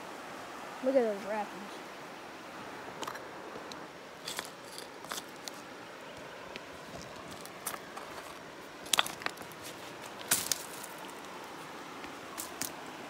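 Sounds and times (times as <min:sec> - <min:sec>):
footsteps on gravel: 0:06.9 - 0:11.1.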